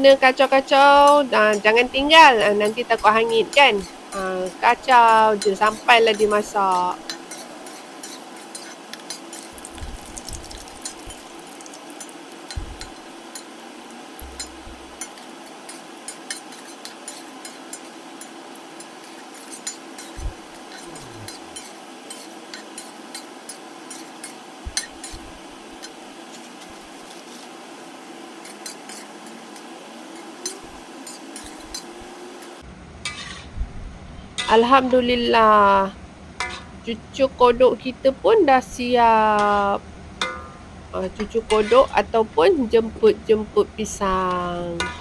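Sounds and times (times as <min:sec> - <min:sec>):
frying oil sizzling and crackling: 0:00.0 - 0:33.6, 0:34.3 - 0:45.0
spatula knocking and scraping wok: 0:00.2 - 0:27.5, 0:28.4 - 0:32.1, 0:33.0 - 0:33.6, 0:36.4 - 0:36.8, 0:39.2 - 0:42.1, 0:44.0 - 0:45.0.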